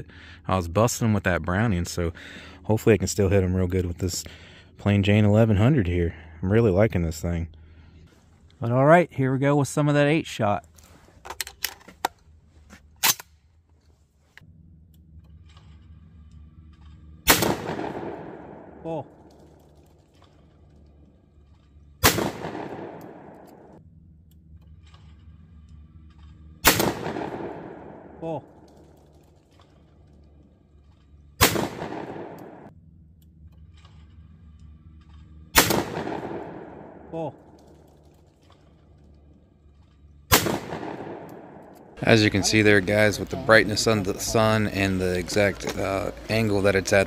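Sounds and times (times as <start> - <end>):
low steady hum: 0.0 - 47.0
shotgun blast echoing: 17.3 - 19.3, 22.0 - 23.8, 26.6 - 28.6, 31.4 - 32.7, 35.6 - 37.3, 40.3 - 42.0.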